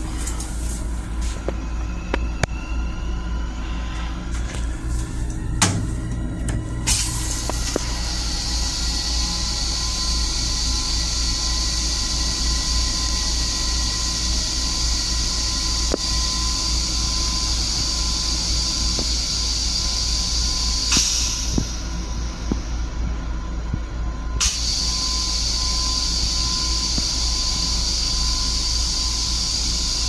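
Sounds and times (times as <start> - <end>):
low steady hum: 0.0 - 30.0
toilet flush hiss: 6.9 - 22.4, 24.4 - 30.0.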